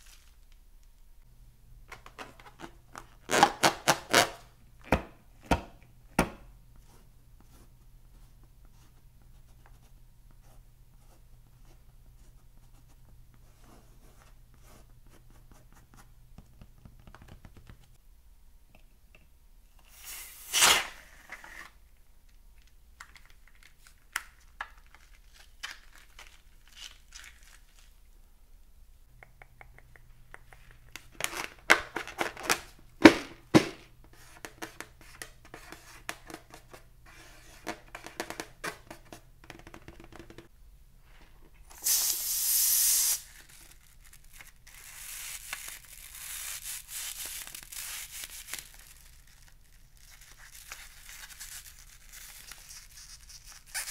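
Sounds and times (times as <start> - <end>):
crinkling rustle: 22.6 - 28.0, 47.1 - 53.9
sharp clicks and taps: 29.1 - 31.0
loud hiss: 41.8 - 43.4.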